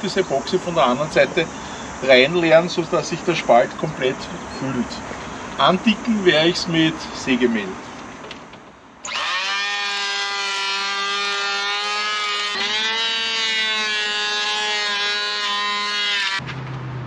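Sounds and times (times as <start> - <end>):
electric hand planer whining: 9.0 - 16.4.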